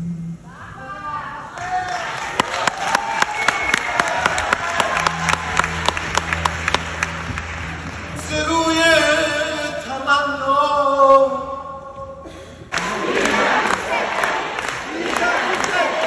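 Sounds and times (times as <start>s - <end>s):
audience cheering: 1.5s - 7.9s, 12.8s - 16.0s
audience clapping: 1.5s - 8.5s, 12.7s - 16.0s
man singing a cappella: 8.2s - 12.0s.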